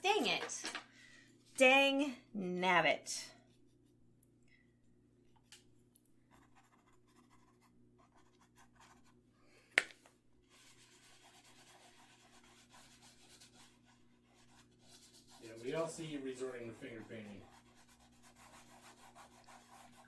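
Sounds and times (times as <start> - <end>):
fingers rubbing paint on canvas: 10.5 - 20.0.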